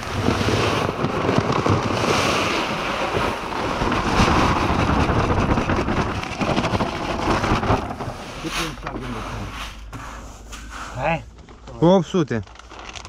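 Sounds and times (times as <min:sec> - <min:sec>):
fertilizer granules pouring into hopper: 0:00.0 - 0:08.8.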